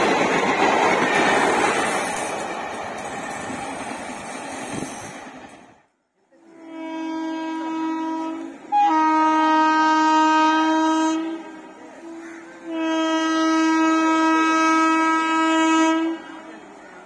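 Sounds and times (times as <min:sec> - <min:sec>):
train horn blasts: 0:06.4 - 0:16.6.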